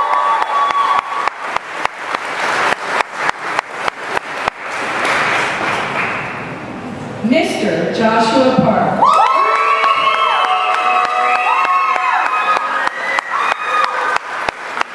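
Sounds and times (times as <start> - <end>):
audience applause: 0.0 - 6.6, 9.0 - 14.9
crowd noise: 0.0 - 14.9.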